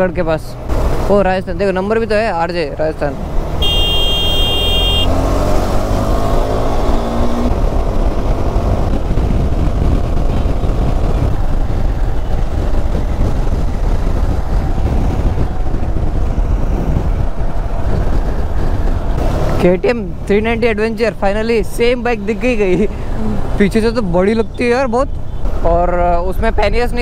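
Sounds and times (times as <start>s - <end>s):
wind rush on microphone: 5.1s - 19.6s.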